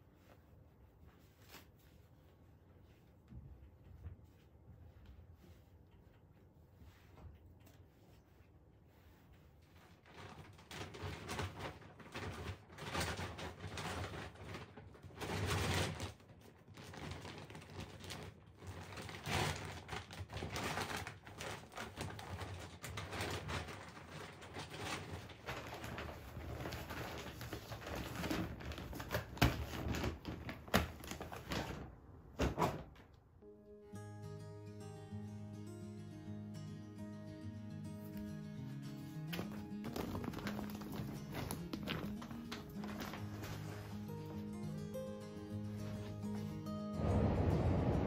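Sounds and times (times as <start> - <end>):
mattress topper rustling: 0.0 - 16.0, 39.0 - 48.0.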